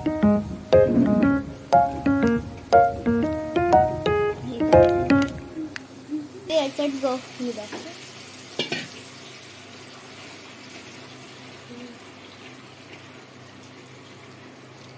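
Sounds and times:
steady hiss: 0.0 - 12.0
person speaking: 4.0 - 5.8.

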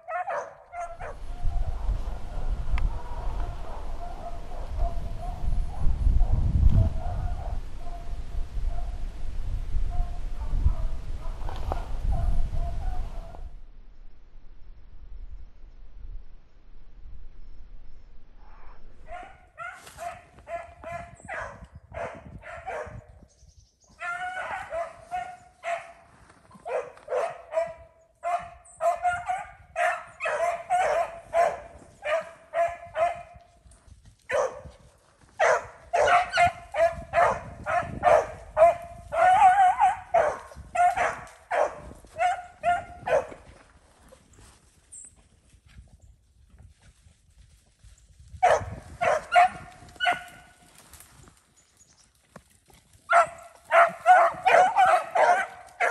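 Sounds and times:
dogs baying: 0.0 - 1.2, 26.6 - 33.3, 35.4 - 43.4, 53.1 - 55.9.

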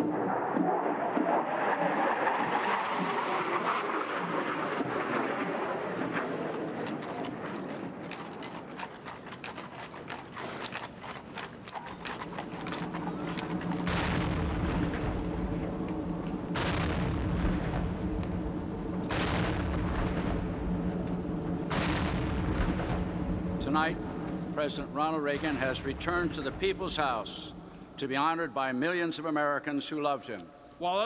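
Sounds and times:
jet flyover roar: 0.0 - 8.4, 11.6 - 28.0
booming cannon shots: 13.5 - 27.7.

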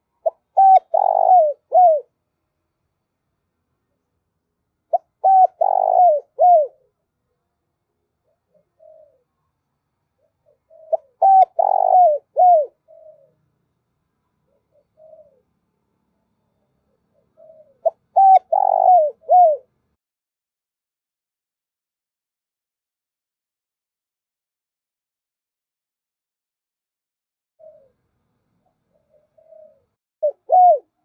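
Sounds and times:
dove cooing: 0.2 - 2.2, 4.9 - 7.0, 8.2 - 9.4, 10.2 - 13.5, 14.4 - 15.6, 16.9 - 19.7, 27.6 - 28.0, 28.6 - 31.0.

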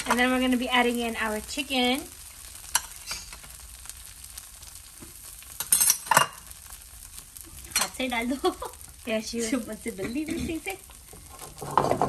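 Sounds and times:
tortilla sizzling in frying pan: 0.0 - 12.0
utensil clattering against pan: 11.3 - 12.0.

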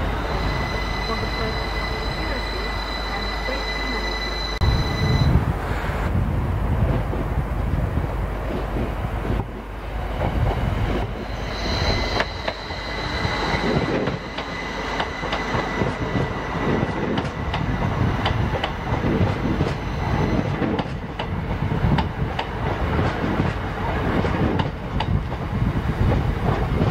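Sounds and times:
high-pitched wheel squeal: 0.0 - 5.4, 10.9 - 20.8.

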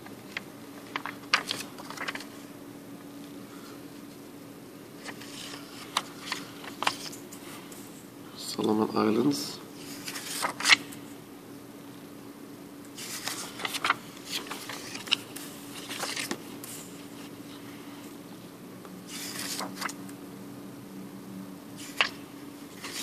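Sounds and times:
faint steady hum: 0.0 - 23.0
paper banknotes rustling: 0.2 - 2.5, 5.0 - 7.5, 9.8 - 11.0, 13.0 - 17.7, 19.1 - 20.0, 21.8 - 23.0.

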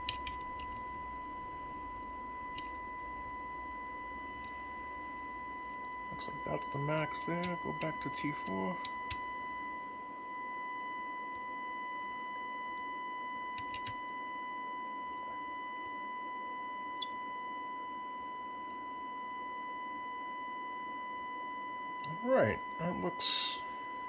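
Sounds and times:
low room hum: 0.0 - 24.0
steady pure test tone: 0.0 - 24.0.

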